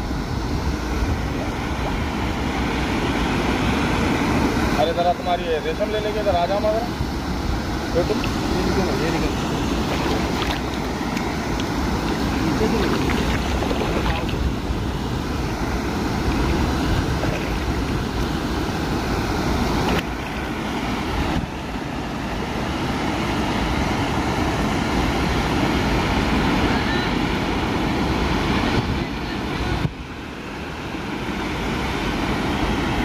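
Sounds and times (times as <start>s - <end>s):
steady rushing noise: 0.0s - 22.9s.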